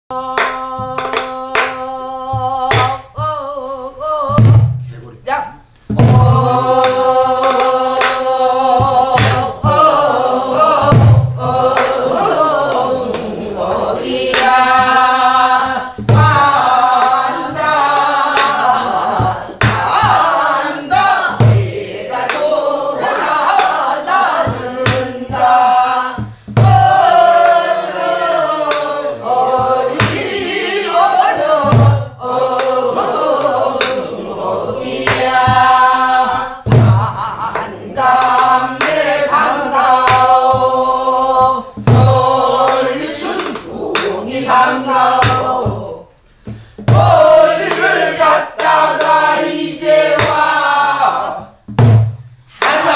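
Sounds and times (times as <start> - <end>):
woman singing folk song: 0.1 - 4.7
deep barrel drum strokes: 5.9 - 32.2.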